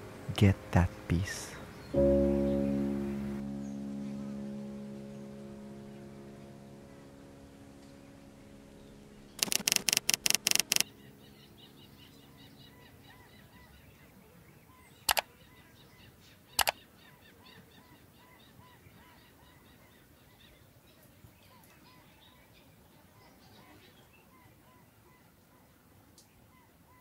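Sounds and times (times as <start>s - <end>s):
birds chirping: 0.0s - 25.3s
sharp clicks: 9.4s - 10.8s, 15.1s - 15.3s
typewriter key clacks: 9.4s - 10.8s.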